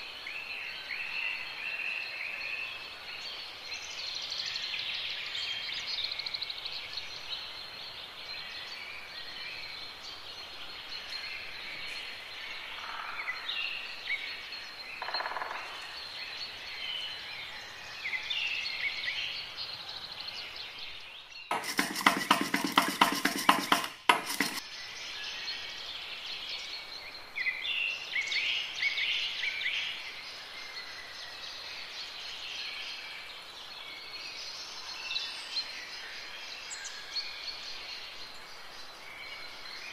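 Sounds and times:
fork beating eggs in glass bowl: 0:21.5 - 0:24.6.

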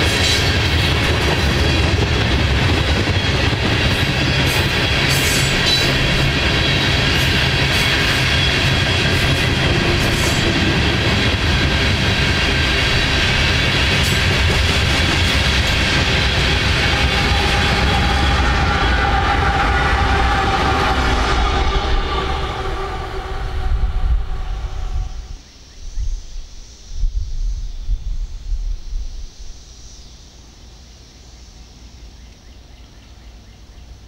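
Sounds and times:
diesel locomotives passing: 0:00.0 - 0:25.4
freight train rumbling past: 0:00.0 - 0:25.4.

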